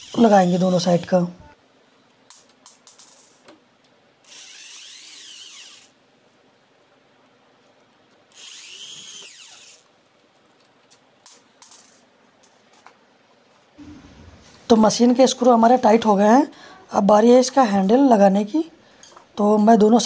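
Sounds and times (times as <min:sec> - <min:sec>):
cordless drill motor whine: 0:00.0 - 0:00.3, 0:04.2 - 0:06.0, 0:08.3 - 0:09.8.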